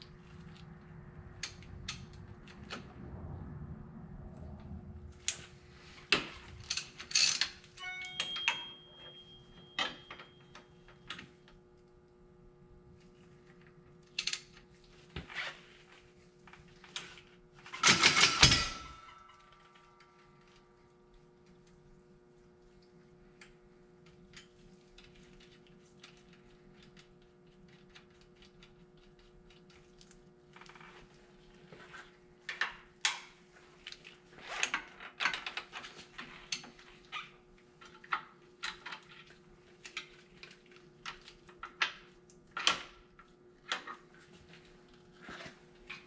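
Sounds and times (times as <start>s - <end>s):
tools and steel parts clinking: 6.6s - 10.5s, 17.8s - 19.3s.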